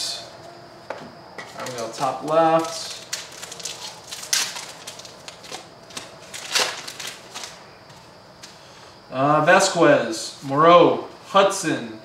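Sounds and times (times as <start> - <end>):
foil wrapper crinkling: 1.5 - 7.6.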